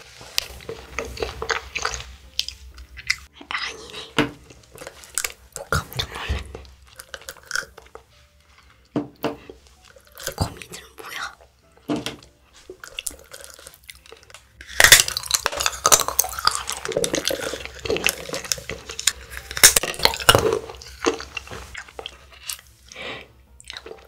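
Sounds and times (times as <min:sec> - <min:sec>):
chocolate shell cracking: 0:04.6 - 0:08.0, 0:12.9 - 0:22.7.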